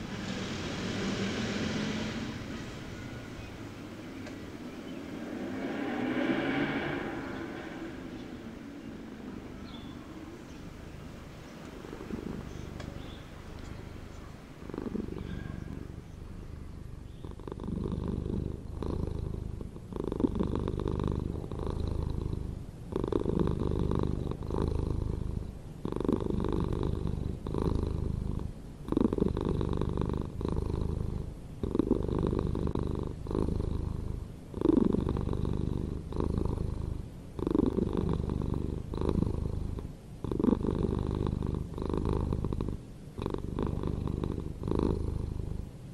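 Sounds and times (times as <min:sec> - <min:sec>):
pulsing buzzing rumble: 0:00.0 - 0:17.0.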